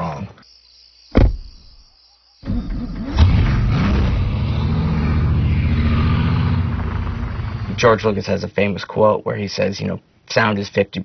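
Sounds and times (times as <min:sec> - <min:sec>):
sharp thump: 0:01.2 - 0:01.7
car engine deep rumble: 0:02.7 - 0:08.4.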